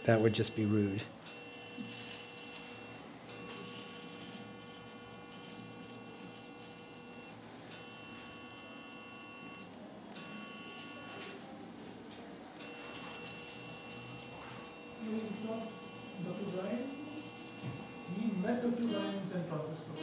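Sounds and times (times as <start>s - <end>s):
electrosurgical activation tone: 0.0s - 11.4s, 12.6s - 19.3s.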